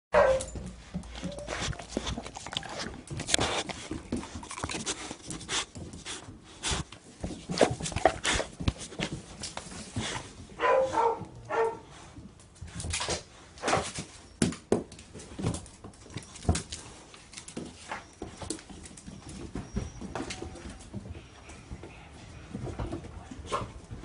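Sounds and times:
puppies scuffling: 0.2s - 24.0s
puppy whimpers: 1.2s - 3.0s, 19.0s - 20.8s.

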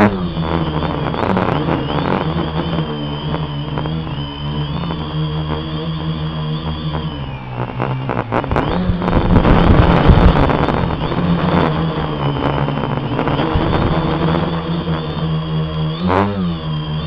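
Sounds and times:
quadcopter motors whining: 0.0s - 17.0s
rushing rattling wind noise: 7.7s - 14.5s.

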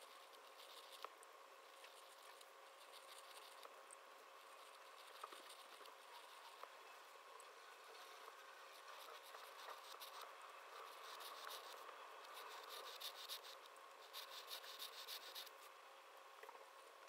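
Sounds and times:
dip pen scratching on paper: 0.0s - 1.1s, 1.8s - 3.7s, 4.5s - 6.7s, 8.1s - 15.6s
faint steady hum: 0.0s - 17.0s.

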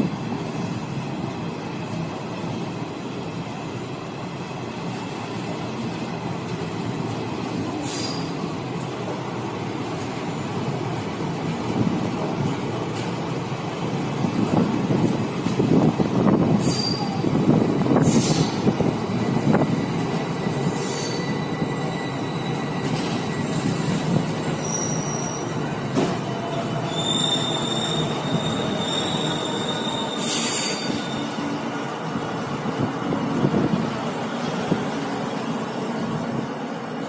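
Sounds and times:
train wheels on track: 0.0s - 37.0s
high wheel squeal: 7.8s - 8.4s, 16.6s - 17.2s, 20.3s - 25.6s, 26.6s - 31.4s.

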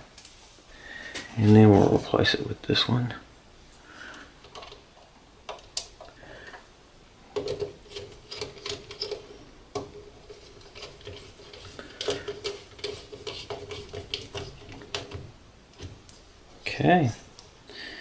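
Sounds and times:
wire scraping against plastic: 7.4s - 16.0s.

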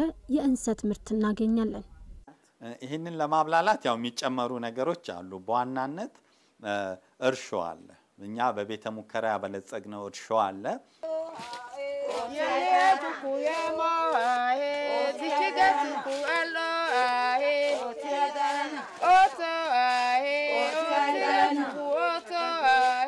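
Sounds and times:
person singing in a high voice: 11.0s - 23.0s.

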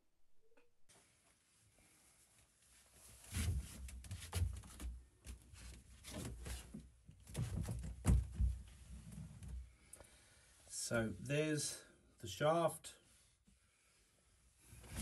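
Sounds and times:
handheld camera knocks and thuds: 7.3s - 8.7s.

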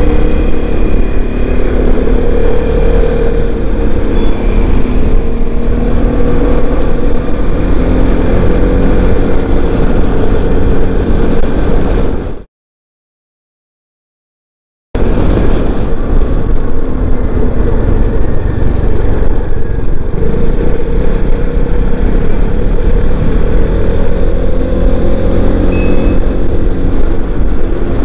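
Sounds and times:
motorcycle engine hum: 0.0s - 12.5s, 15.0s - 28.0s
wind rushing over microphone: 0.0s - 12.5s, 15.0s - 28.0s.

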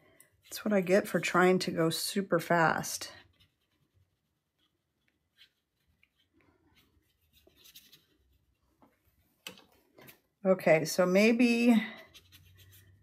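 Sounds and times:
brush scratching on paper: 3.2s - 8.6s, 12.0s - 13.0s.

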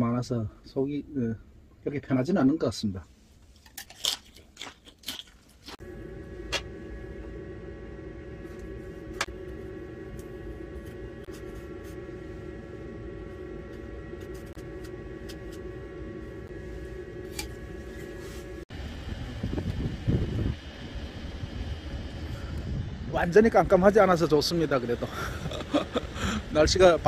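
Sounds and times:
fan or motor humming: 5.6s - 27.0s.

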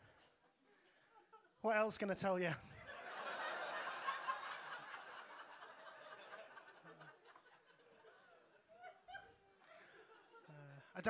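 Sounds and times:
audience laughing: 2.8s - 11.0s.

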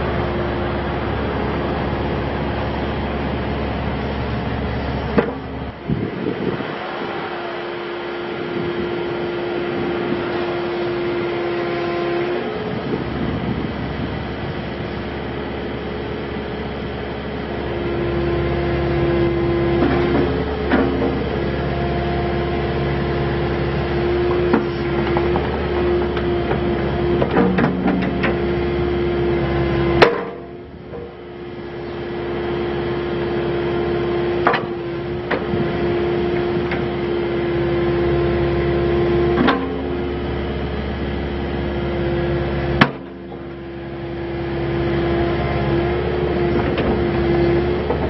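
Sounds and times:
diesel engine running: 0.0s - 48.0s
hydraulic whine: 0.0s - 48.0s
sharp knocks from excavator arm: 30.0s - 30.4s, 34.4s - 34.7s.

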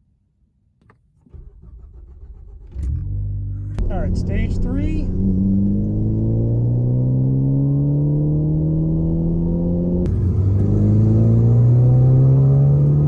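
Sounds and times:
car engine accelerating: 1.3s - 13.0s.

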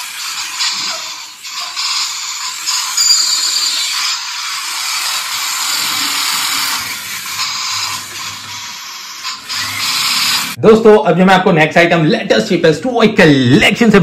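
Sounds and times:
toy motors and gears whirring: 0.0s - 10.6s.

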